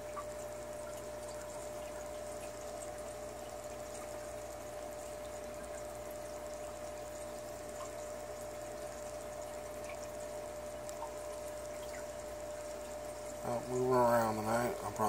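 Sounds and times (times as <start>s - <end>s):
constant hum: 0.0s - 15.0s
trickle of falling water: 0.0s - 15.0s.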